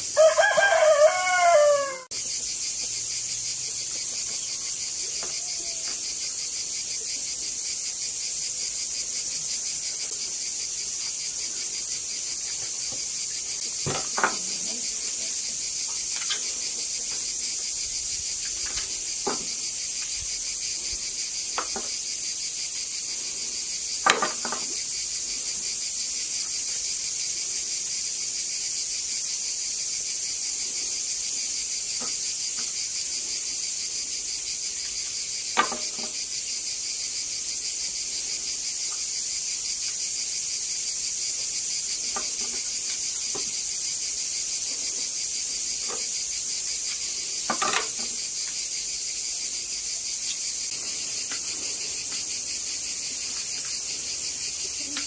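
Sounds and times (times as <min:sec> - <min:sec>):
crickets chirping: 0:00.0 - 0:55.0.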